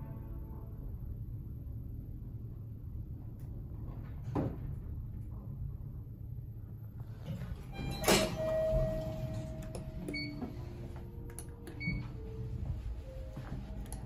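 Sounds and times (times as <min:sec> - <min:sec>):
elevator chime tone: 0:07.7 - 0:11.0, 0:11.7 - 0:13.6.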